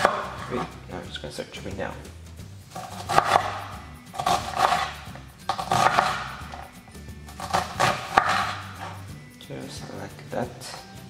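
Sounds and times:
knife chopping on wooden board: 0:00.0 - 0:00.8, 0:02.7 - 0:06.7, 0:07.3 - 0:09.0
background music: 0:00.0 - 0:11.0.

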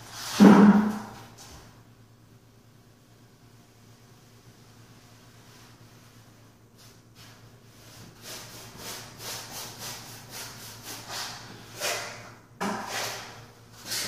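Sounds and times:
paintbrush swishing on wall: 0:04.6 - 0:14.0
brush knocking in paint bucket: 0:11.8 - 0:13.4.

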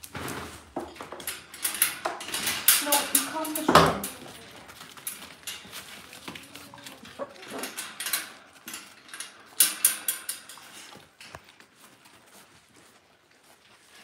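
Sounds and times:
puppies scuffling: 0:00.0 - 0:14.0
metal food bowl clinking: 0:00.9 - 0:11.0.

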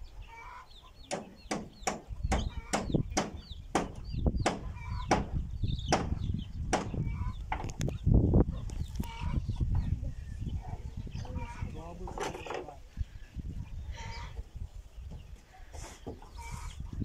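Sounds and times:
hammer driving nail through roofing: 0:01.1 - 0:06.9.

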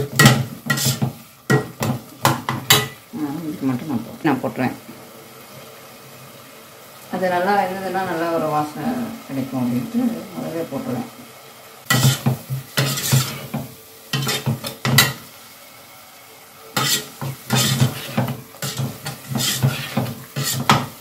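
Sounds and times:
metal spoon scraping a pot: 0:00.0 - 0:02.0, 0:11.9 - 0:15.1, 0:16.8 - 0:20.9.

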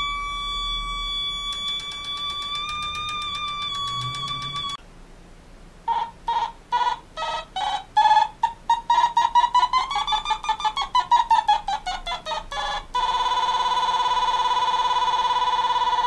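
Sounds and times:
synthesizer held tone: 0:00.0 - 0:04.8.

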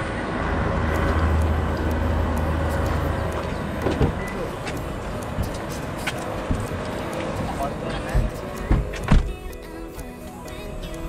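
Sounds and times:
vehicle engine humming: 0:00.0 - 0:11.0
small ticks: 0:00.8 - 0:11.0
car door latch click and thunk: 0:03.8 - 0:04.2, 0:08.2 - 0:09.4.

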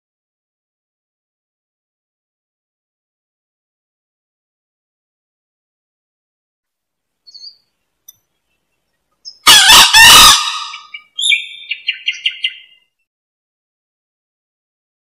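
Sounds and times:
faint chirp: 0:07.2 - 0:09.4
junglefowl crowing: 0:09.3 - 0:12.8.

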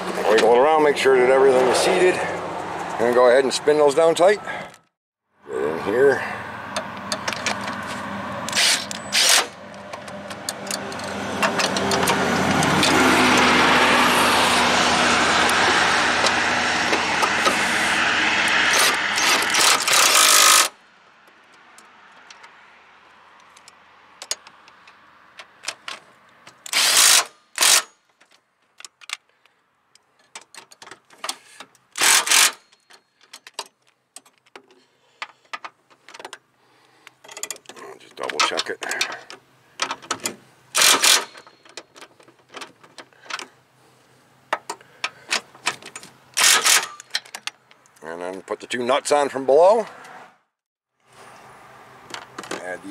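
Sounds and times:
hand tools clicking on bolts: 0:08.5 - 0:13.5, 0:18.5 - 0:20.7, 0:23.4 - 0:43.6, 0:44.5 - 0:48.0.

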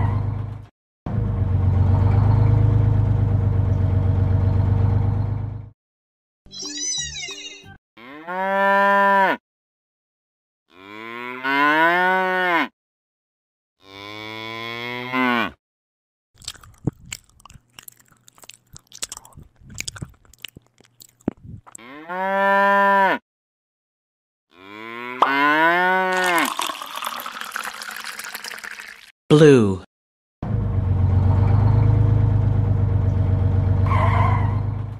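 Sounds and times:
cow mooing: 0:08.0 - 0:09.4, 0:10.7 - 0:12.7, 0:13.8 - 0:15.6, 0:21.8 - 0:23.2, 0:24.5 - 0:26.2
cow chewing crunchily: 0:16.4 - 0:21.9
milk pouring into bucket: 0:26.1 - 0:29.1.

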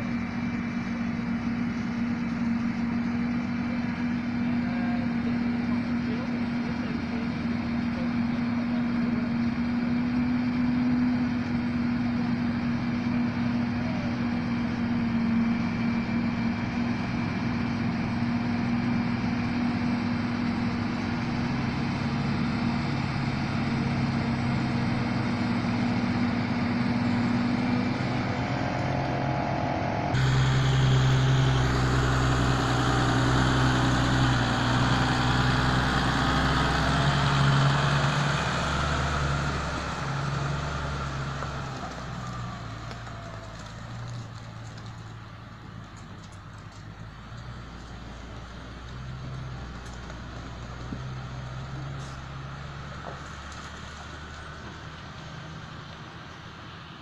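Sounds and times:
forage harvester drone: 0:00.0 - 0:57.0
tractor engine passing: 0:00.0 - 0:57.0.

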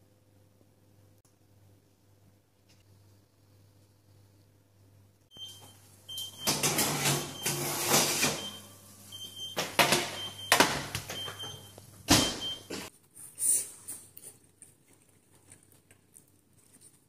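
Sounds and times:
faint steady hum: 0:00.0 - 0:06.6.

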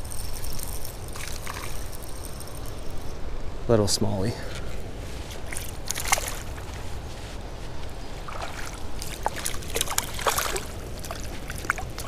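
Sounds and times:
fish splashing in water: 0:08.2 - 0:12.0.

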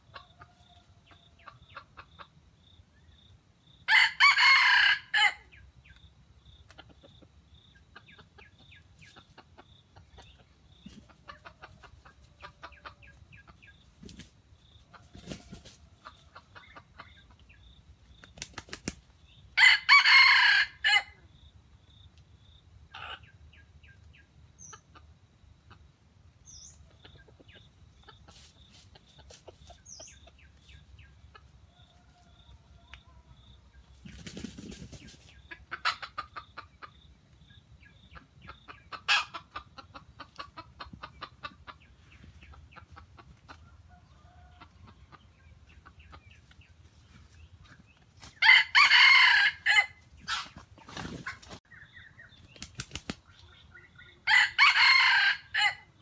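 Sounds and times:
soft clucks and chirps: 0:00.0 - 0:56.0
rooster crowing: 0:03.9 - 0:05.5, 0:19.6 - 0:21.2, 0:48.4 - 0:50.0, 0:54.2 - 0:55.9.

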